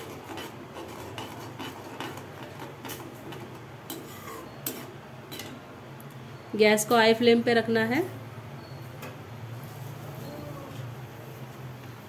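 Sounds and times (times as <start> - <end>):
metal spoon clinking and scraping pan: 0.0 - 5.6.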